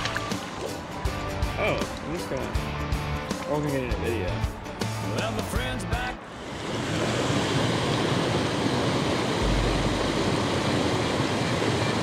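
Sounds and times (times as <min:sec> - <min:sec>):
waterfall rushing into pool: 0:06.2 - 0:12.0
low rumble: 0:09.2 - 0:11.3.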